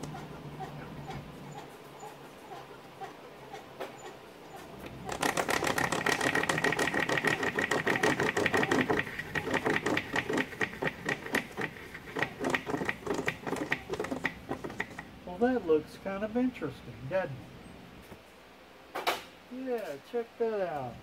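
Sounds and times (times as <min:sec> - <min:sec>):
rhythmic clatter of clicks: 0:04.8 - 0:15.1.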